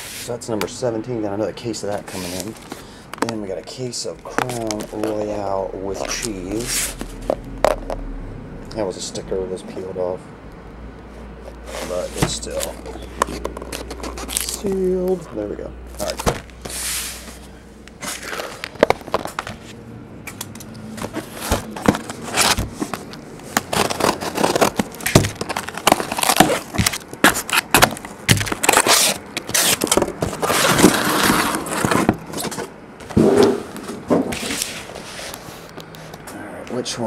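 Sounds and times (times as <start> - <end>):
shrink wrap crinkling: 11.5 - 19.8, 21.0 - 32.5
scissors cutting plastic: 11.8 - 15.2, 20.3 - 32.6
box clicks and knocks: 12.2 - 14.5, 16.0 - 16.5, 21.0 - 34.4.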